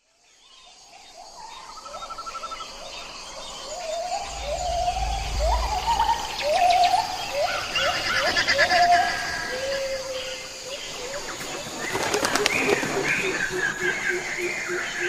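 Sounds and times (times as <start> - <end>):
chirps and trills: 2.8 - 14.6
low rumble: 3.9 - 8.0
rising whistled animal calls: 3.9 - 9.8.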